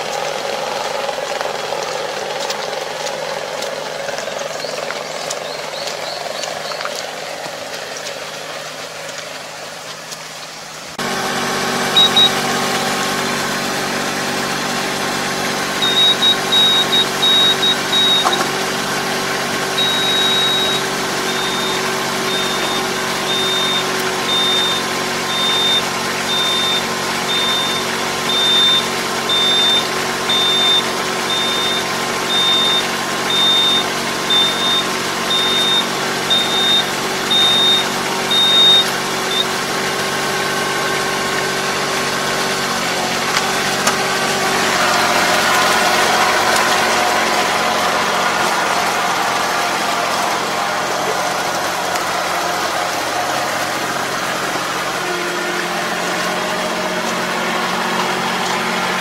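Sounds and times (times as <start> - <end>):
tractor engine idling: 0.0 - 59.0
high warning beep: 11.9 - 12.4, 15.8 - 18.5, 19.8 - 39.6.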